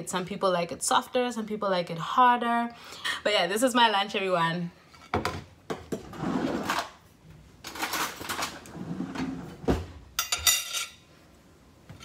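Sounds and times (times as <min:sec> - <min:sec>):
metallic cutlery clink: 0:10.2 - 0:11.0.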